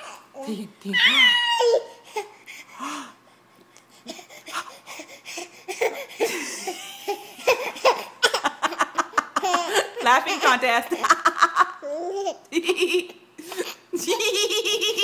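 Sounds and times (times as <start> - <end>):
baby laughing and giggling: 4.1 - 12.5, 13.5 - 15.0.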